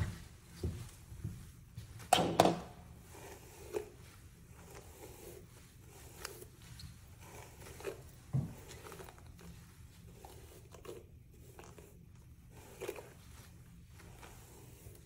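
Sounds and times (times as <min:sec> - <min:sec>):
brush scraping through wet hair: 0:03.0 - 0:15.0.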